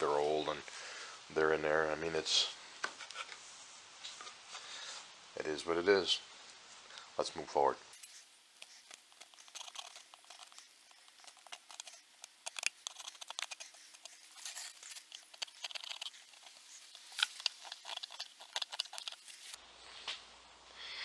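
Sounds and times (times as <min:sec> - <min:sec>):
chisel scraping glue off wood: 0:08.0 - 0:19.6.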